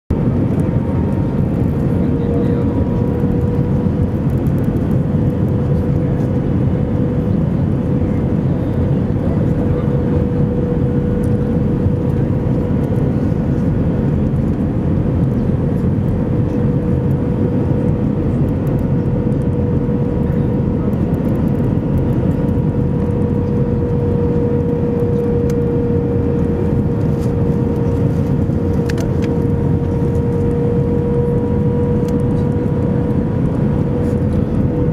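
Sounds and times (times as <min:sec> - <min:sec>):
aircraft cabin roar: 0:00.1 - 0:34.9.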